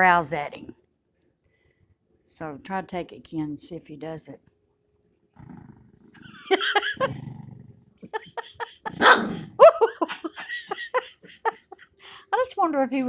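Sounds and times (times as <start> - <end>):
small dog growling: 5.4 - 6.3, 7.0 - 8.0, 8.8 - 9.6
dog snarling barks: 8.8 - 9.6.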